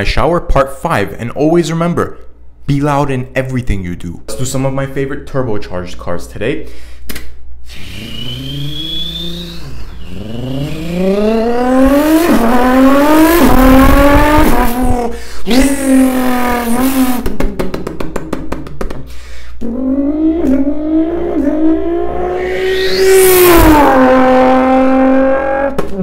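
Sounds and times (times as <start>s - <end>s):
man imitating engine sounds: 8.1s - 26.0s.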